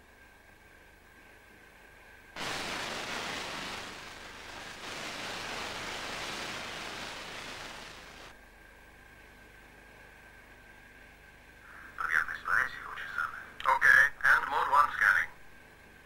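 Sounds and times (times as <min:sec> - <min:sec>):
static hiss: 0:02.4 - 0:08.4.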